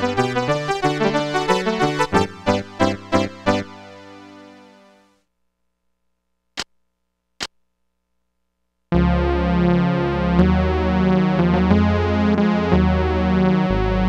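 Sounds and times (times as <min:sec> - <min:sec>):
synth chords over deep bass: 0:09.0 - 0:14.0.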